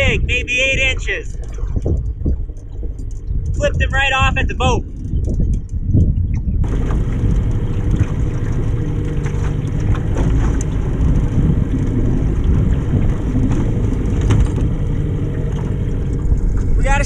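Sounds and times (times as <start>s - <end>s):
boat motor running: 0.0s - 17.0s
wind on microphone: 0.0s - 17.0s
fishing rods knocking and clicking: 1.3s - 3.8s, 4.9s - 6.6s.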